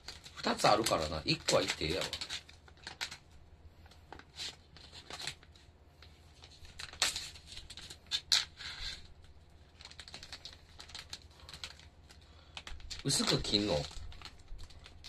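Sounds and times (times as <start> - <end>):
plastic package crinkling: 0.0 - 3.4, 6.4 - 15.0.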